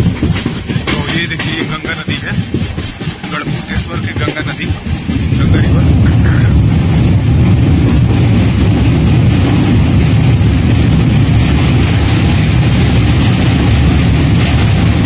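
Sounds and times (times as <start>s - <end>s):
train rumbling across a steel bridge: 0.0s - 15.0s.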